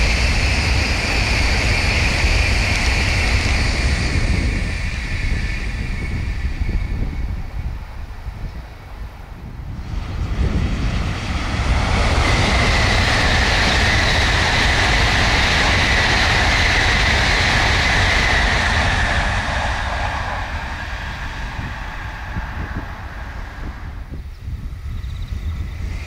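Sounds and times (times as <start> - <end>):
bullet train passing at high speed: 0.0 - 26.0
high whine: 0.0 - 26.0.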